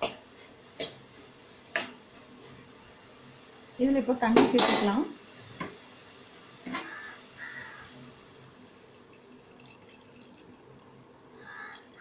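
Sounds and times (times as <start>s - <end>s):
water pouring into a pan: 2.0s - 12.0s.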